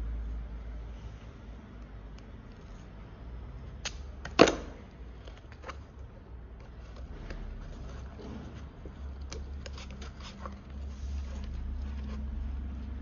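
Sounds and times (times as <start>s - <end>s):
steady low hum: 0.0s - 13.0s
rustling: 5.2s - 13.0s.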